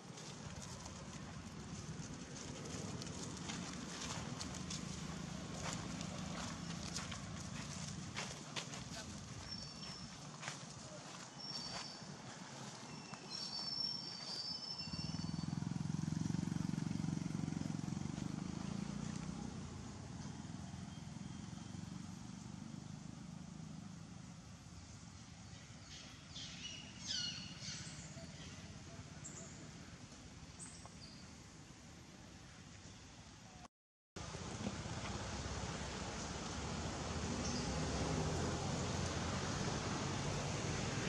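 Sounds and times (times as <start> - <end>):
motorbike engine passing by: 0.2 - 10.6, 11.5 - 24.6, 34.2 - 41.0.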